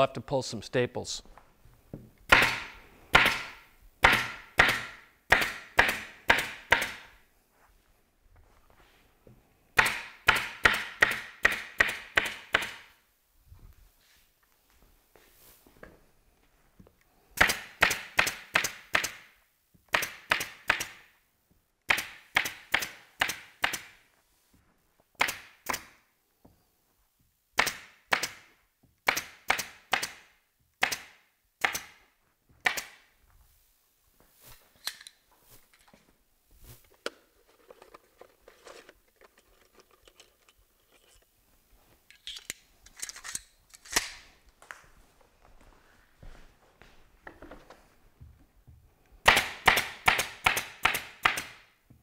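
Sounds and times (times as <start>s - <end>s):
staple gun firing into wood: 2.3s - 7.0s, 17.4s - 19.3s, 19.9s - 21.0s, 21.9s - 23.9s, 27.6s - 32.0s, 32.6s - 33.0s, 49.3s - 51.6s
faint handling sounds: 13.4s - 17.2s, 33.2s - 49.2s.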